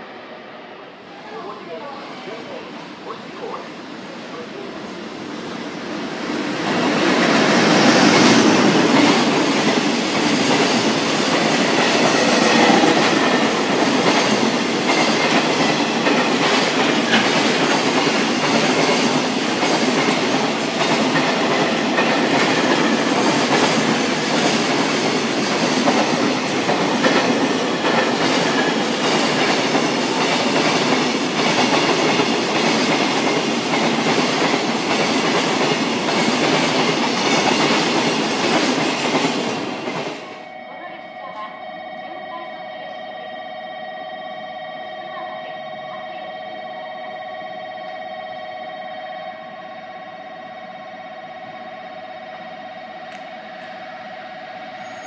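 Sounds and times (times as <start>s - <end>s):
freight train passing: 0.0s - 55.0s.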